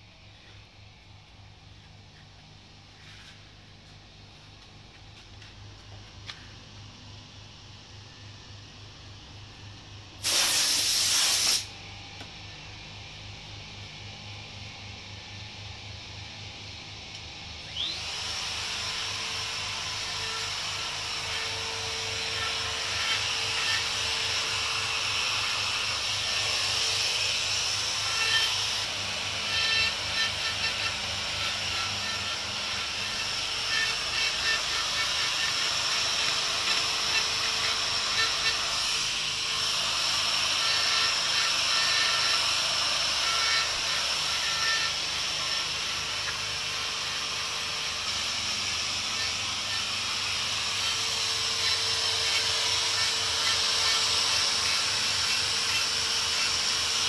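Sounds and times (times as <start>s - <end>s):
angle grinder whining: 1.6s - 57.0s
grinder disc rasping on stone: 20.0s - 57.0s.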